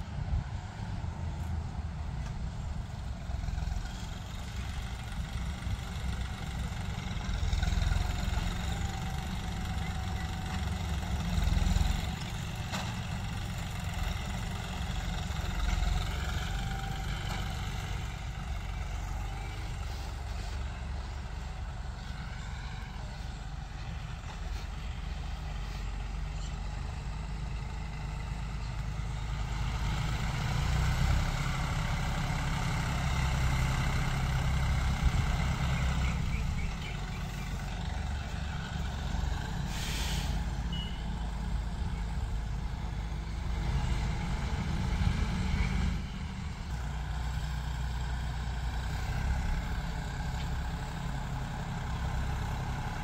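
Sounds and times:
tractor diesel engine rumbling: 0.0 - 53.0
brief hiss: 39.7 - 40.5.

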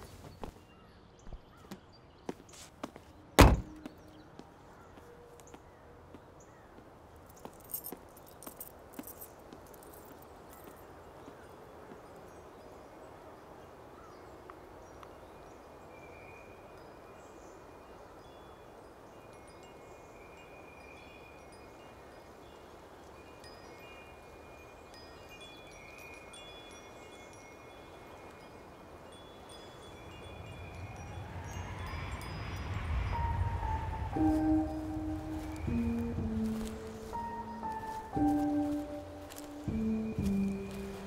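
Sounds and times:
high chime tones: 29.8 - 41.0
rising swell: 31.2 - 37.6.

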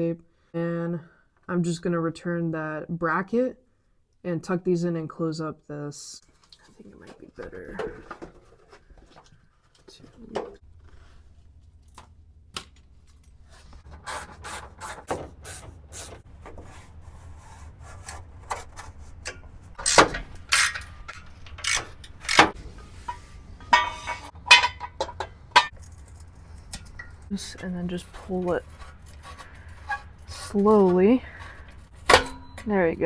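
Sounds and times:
ratchet wrench clicking: 19.8 - 20.9, 21.5 - 22.6.

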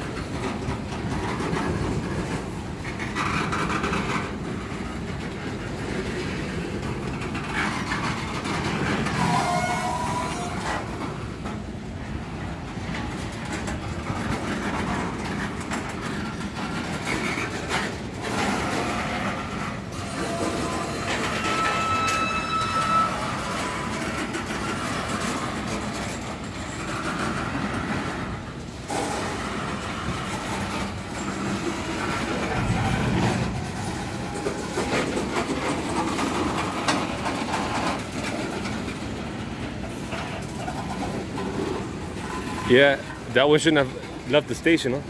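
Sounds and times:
train wheels rumbling on rails: 0.0 - 45.0
high wheel squeal: 8.8 - 11.0, 19.9 - 25.4, 42.2 - 43.1.

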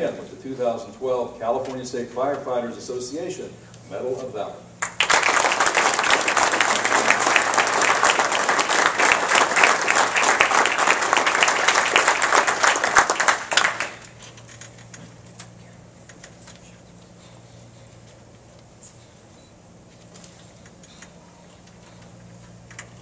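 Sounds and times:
audience applause: 4.8 - 14.1.

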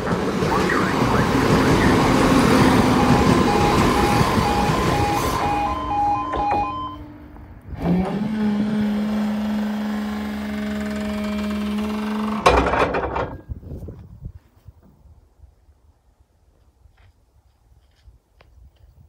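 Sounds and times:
level crossing two-tone alarm: 0.4 - 7.2
barrier motor humming: 0.6 - 12.5
barrier boom clunk and rattle: 12.1 - 13.7.

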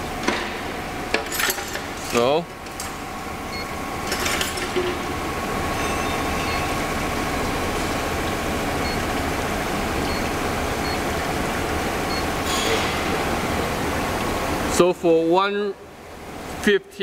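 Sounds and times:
weaving machine motor running: 3.5 - 12.5
short keypad beeps: 12.1 - 12.3.

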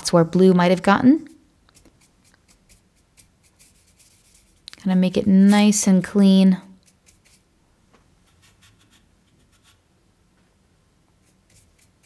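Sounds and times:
paintbrush strokes on paper: 1.7 - 6.1, 6.7 - 7.5, 8.2 - 9.8, 11.2 - 12.0.

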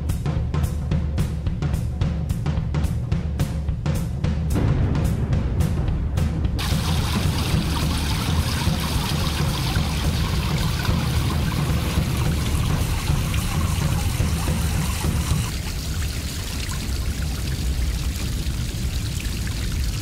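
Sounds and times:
water splashing over rocks: 6.6 - 20.0.

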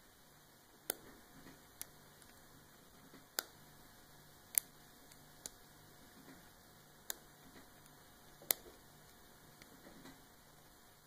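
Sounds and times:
small switches clicking: 3.3 - 3.6, 4.5 - 5.6, 7.0 - 7.2.

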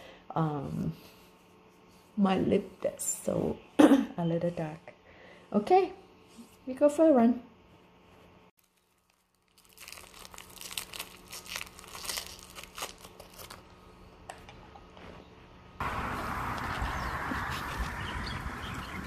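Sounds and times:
plastic wrapper crinkling: 8.6 - 13.8
outdoor rushing noise: 15.8 - 19.0.

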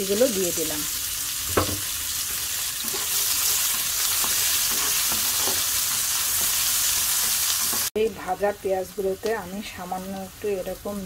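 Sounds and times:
onions sizzling in frying pan: 0.0 - 11.0
spatula scraping pan: 2.8 - 7.9.

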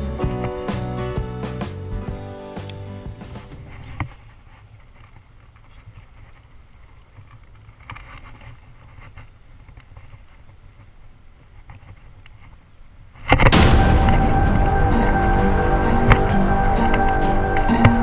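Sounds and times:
wind rumble on microphone: 13.5 - 18.0.

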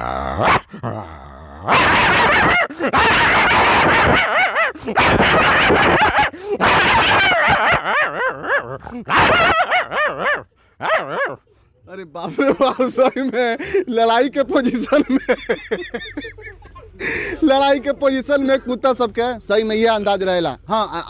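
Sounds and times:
man barking like a dog: 0.0 - 1.0, 1.6 - 11.5
man growling like a dog: 0.0 - 11.3.

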